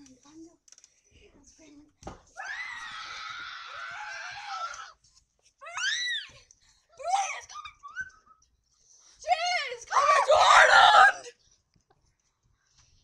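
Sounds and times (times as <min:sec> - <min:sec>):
children screaming: 0:02.4 - 0:04.9, 0:09.9 - 0:11.3.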